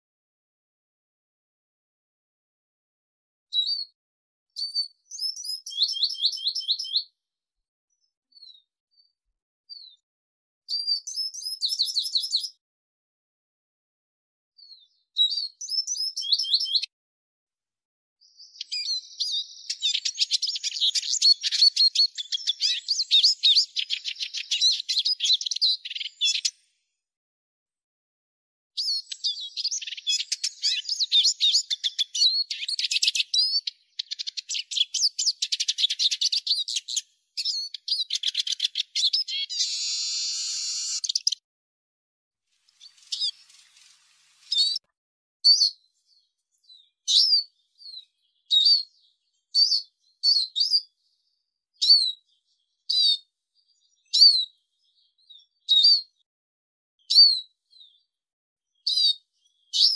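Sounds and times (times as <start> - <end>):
bird twittering song: 3.5 - 4.0, 4.6 - 7.2, 7.9 - 10.0, 10.7 - 12.6, 14.6 - 16.9, 18.2 - 26.7, 28.8 - 41.4, 42.6 - 44.8, 45.5 - 56.3, 57.0 - 59.9
high downward-sliding bird calls: 37.8 - 41.4, 42.6 - 44.8.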